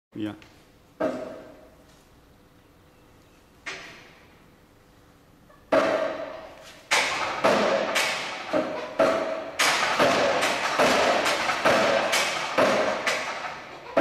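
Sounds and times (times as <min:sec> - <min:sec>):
sharp ringing metal knocks: 0:05.7 - 0:14.0.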